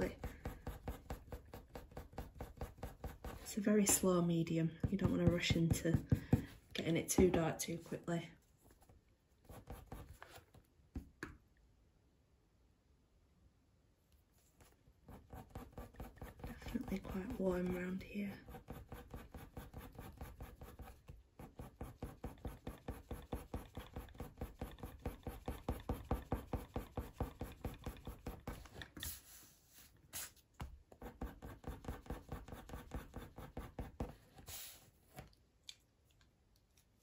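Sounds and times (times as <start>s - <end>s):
coloured pencil scratching on paper: 0.0s - 4.1s, 9.4s - 10.4s, 15.0s - 28.8s, 30.9s - 34.5s.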